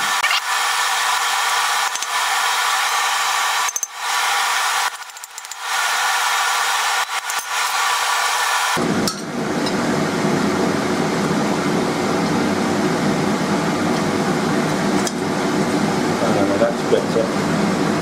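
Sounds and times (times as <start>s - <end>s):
deep fan-like hum: 0.0s - 18.0s.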